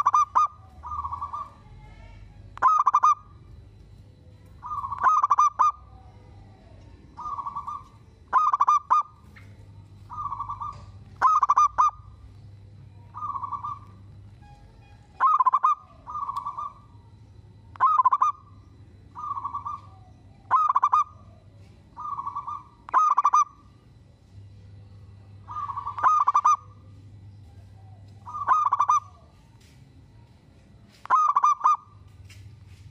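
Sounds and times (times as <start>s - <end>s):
dove cooing: 0.0s - 3.5s, 4.5s - 12.3s, 13.0s - 14.1s, 15.2s - 17.1s, 17.7s - 23.8s, 25.3s - 29.5s, 31.0s - 31.9s.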